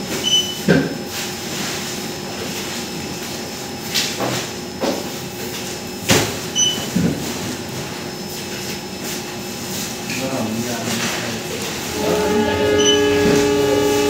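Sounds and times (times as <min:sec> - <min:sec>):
steady hum: 0:11.4 - 0:14.0
high electronic beep: 0:12.0 - 0:13.4.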